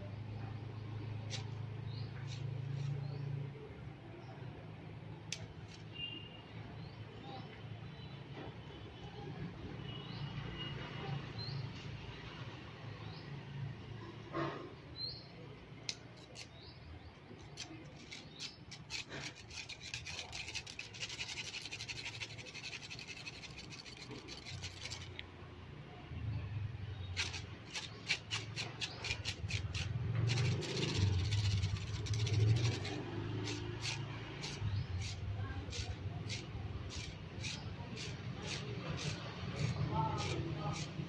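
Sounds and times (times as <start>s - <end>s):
stick scraping on stone paving: 1.2s - 3.2s, 15.9s - 25.5s, 26.9s - 41.0s.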